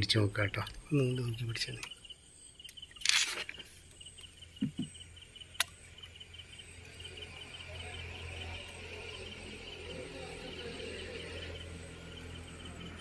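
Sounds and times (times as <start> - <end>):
crickets chirping: 0.0 - 13.0
sharp click: 5.6 - 5.8.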